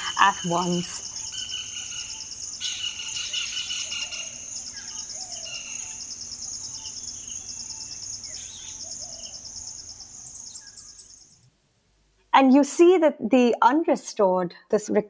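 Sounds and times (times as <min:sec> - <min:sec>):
high insect trill: 0:00.0 - 0:11.4
birds calling: 0:00.0 - 0:11.5.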